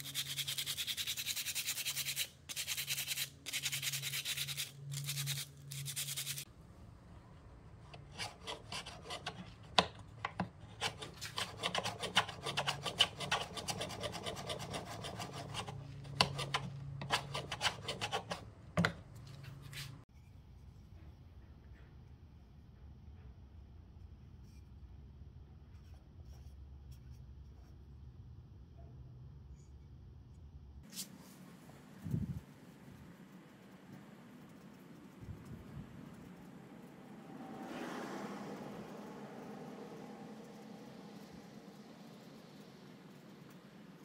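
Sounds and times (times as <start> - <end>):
sandpaper rubbing wood: 0.0 - 6.4, 10.7 - 18.4.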